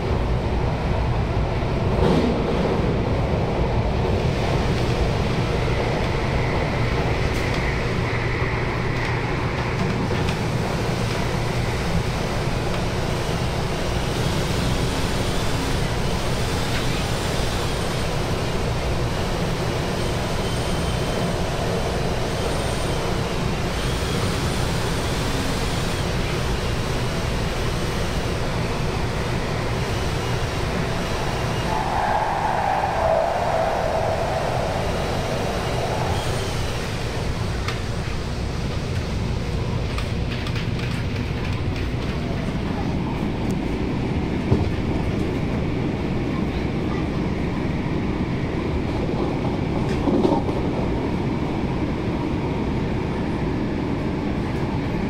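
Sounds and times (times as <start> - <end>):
train wheels rumbling on rail: 0.0 - 55.0
faint high whine: 31.2 - 37.8
loud high-pitched noise: 31.4 - 37.5.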